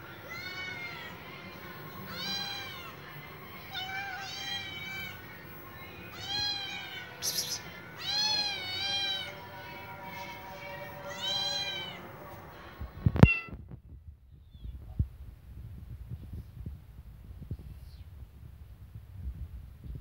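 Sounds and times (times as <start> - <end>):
cat meowing: 0.2 - 1.2, 2.1 - 3.0, 3.7 - 5.2, 6.1 - 9.4, 11.1 - 12.1, 13.2 - 13.6.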